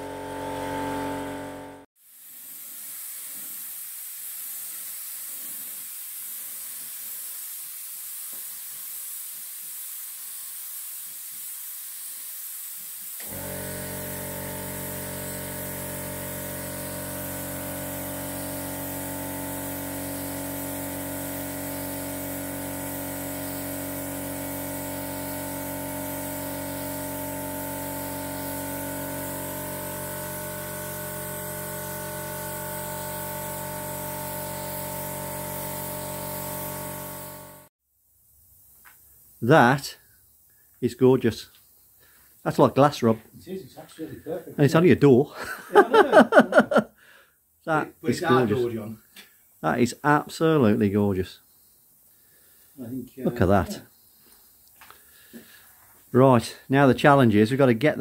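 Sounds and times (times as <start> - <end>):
paint spray gun hissing: 0.0 - 37.7, 52.1 - 56.6.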